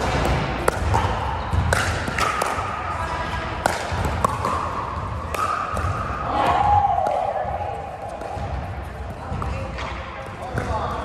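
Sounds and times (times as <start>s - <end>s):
paddles striking plastic ball: 0.0s - 2.7s.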